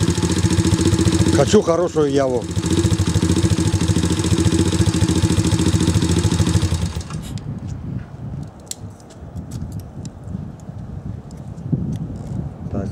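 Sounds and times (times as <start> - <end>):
motorcycle engine idling: 0.0 - 7.2.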